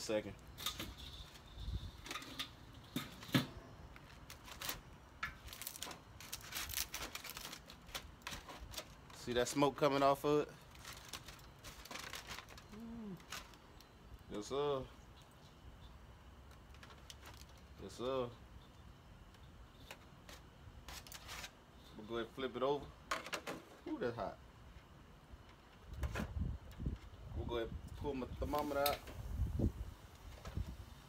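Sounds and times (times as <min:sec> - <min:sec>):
aluminium foil crinkling: 0:03.9 - 0:14.3, 0:16.4 - 0:18.0, 0:19.8 - 0:21.6.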